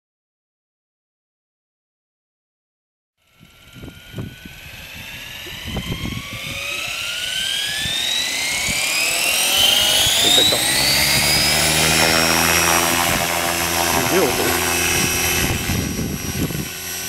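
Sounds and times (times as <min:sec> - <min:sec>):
low rotor hum: 0:03.2 - 0:17.0
motor and gear whine: 0:03.2 - 0:17.0.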